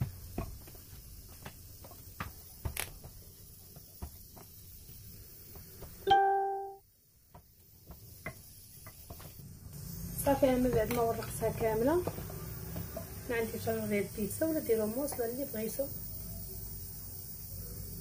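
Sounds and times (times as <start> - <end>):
plucked chime-like note: 6.1 - 6.8.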